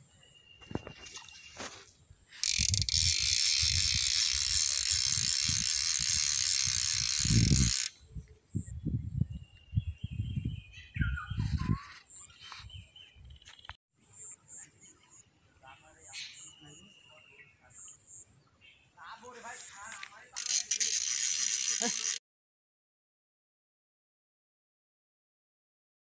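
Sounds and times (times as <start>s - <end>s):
fishing reel ratchet buzzing: 2.4s - 8.0s, 20.3s - 22.2s
scattered clicks: 19.9s - 22.2s.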